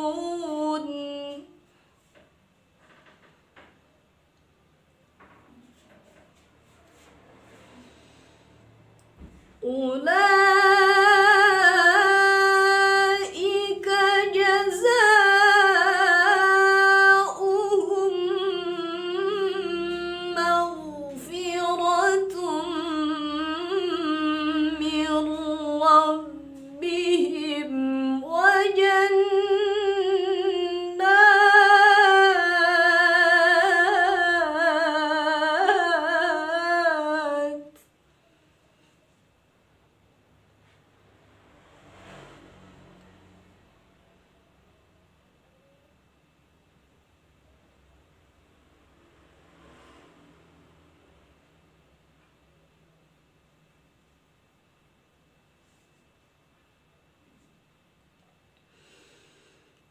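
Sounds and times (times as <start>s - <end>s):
woman reciting melodically: 0.0s - 2.1s, 9.6s - 37.8s.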